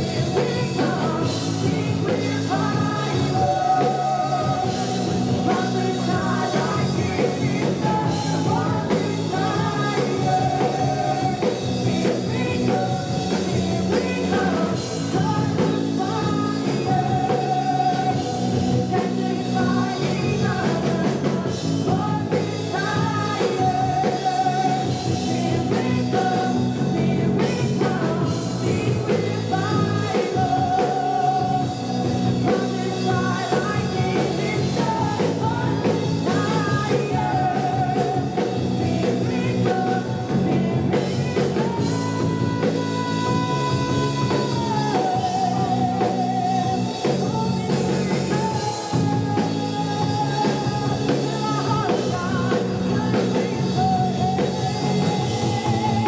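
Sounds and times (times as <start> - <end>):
drum kit: 0.0 - 56.0
electric guitar: 0.0 - 56.0
person singing: 0.0 - 56.0.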